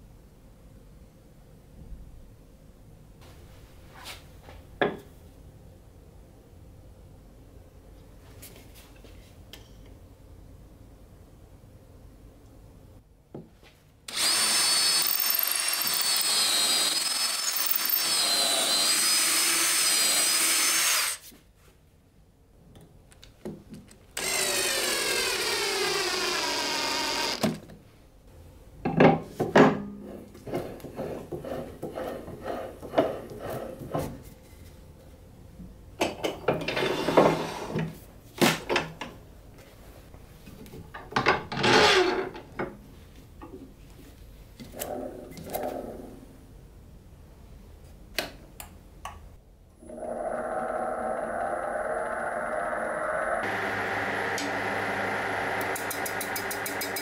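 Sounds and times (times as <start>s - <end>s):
cordless drill boring wood: 14.1s - 21.2s, 24.2s - 27.6s, 49.9s - 57.0s.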